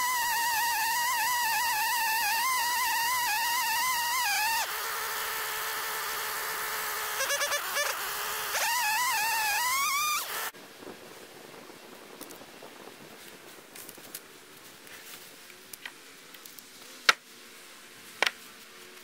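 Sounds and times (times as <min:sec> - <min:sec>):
chainsaw cutting log: 0:00.0 - 0:10.6.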